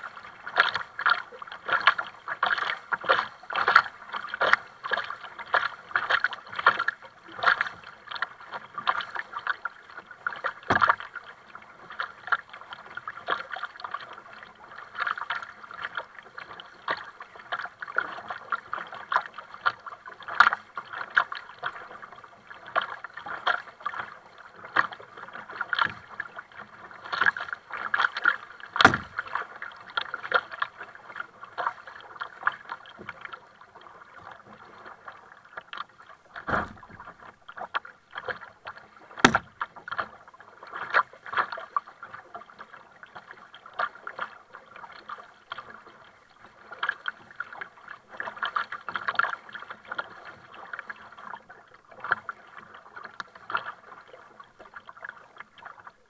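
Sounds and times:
paddle strokes in water: 0.0s - 56.0s
water slapping plastic hull: 0.1s - 45.9s
sharp knocks: 28.8s - 29.2s, 36.5s - 37.0s, 39.2s - 39.5s.

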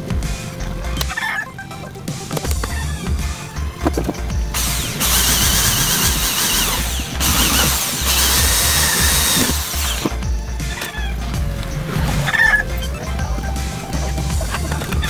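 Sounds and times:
electric drill boring into metal: 4.5s - 10.2s.

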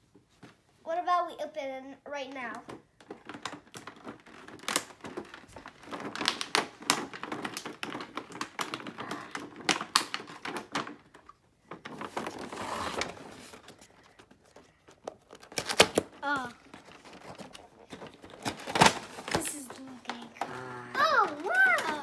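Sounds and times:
packaging clicks and knocks: 2.6s - 22.0s
packaging rustling scrape: 11.8s - 22.0s.

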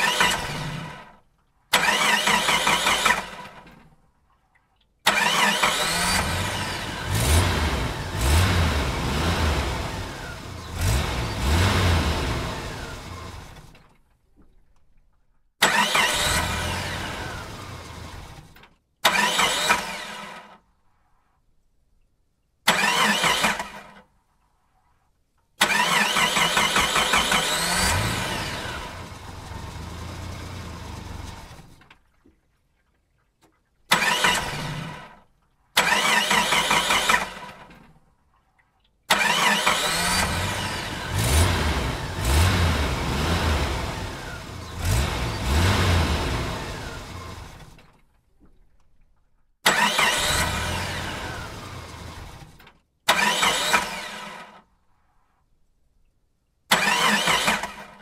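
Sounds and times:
engine starting and revving: 0.0s - 3.8s, 5.1s - 13.9s, 15.6s - 20.6s, 22.7s - 24.0s, 25.6s - 31.9s, 33.9s - 35.2s, 35.8s - 37.8s, 39.1s - 48.0s, 49.6s - 54.7s, 56.7s - 58.0s.

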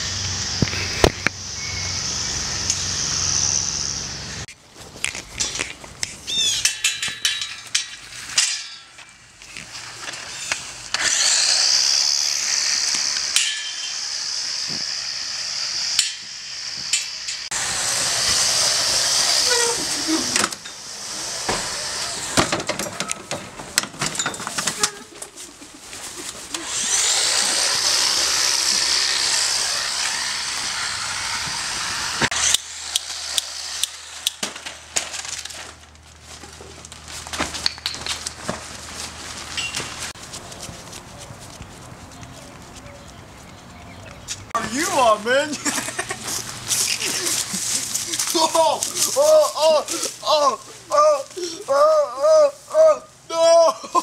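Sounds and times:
chainsaw buzzing: 0.0s - 4.5s, 9.7s - 23.1s, 26.2s - 36.2s, 44.6s - 50.3s.

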